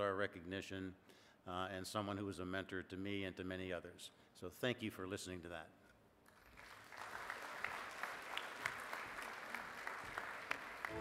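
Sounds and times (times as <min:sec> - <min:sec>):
audience applauding: 0:06.4 - 0:11.0.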